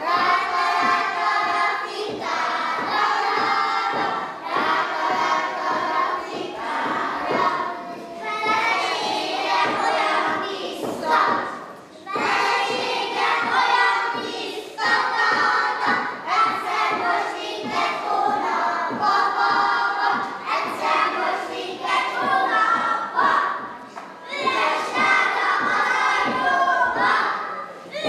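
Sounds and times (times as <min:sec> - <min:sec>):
feet thudding on wooden stage: 0:00.0 - 0:27.2
children singing: 0:00.0 - 0:28.0.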